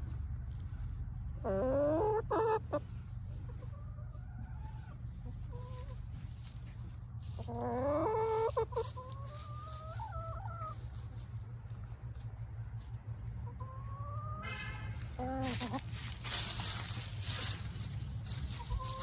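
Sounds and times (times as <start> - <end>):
hens calling: 0.4 - 19.0
low rumble: 10.8 - 19.0.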